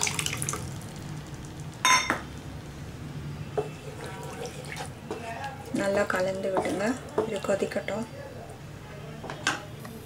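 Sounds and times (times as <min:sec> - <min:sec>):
water pouring into a pan: 0:00.0 - 0:01.8, 0:03.8 - 0:04.9.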